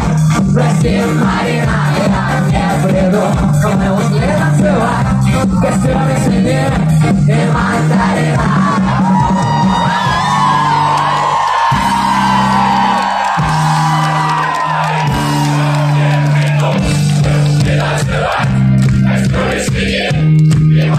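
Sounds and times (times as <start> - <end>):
heavy bass line: 0.0 - 20.9
live pop music over loudspeakers: 0.0 - 20.9
crowd yelling: 7.4 - 20.9.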